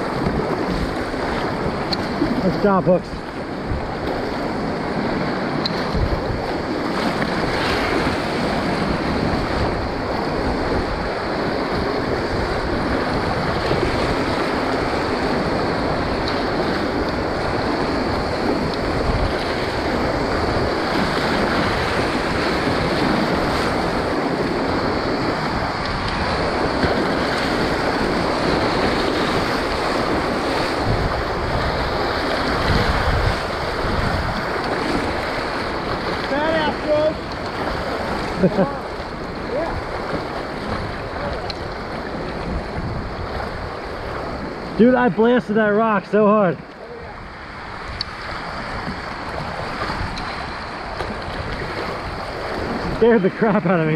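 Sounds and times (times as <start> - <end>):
whitewater rapids rushing: 0.0 - 53.9
wind buffeting microphone: 0.0 - 53.9.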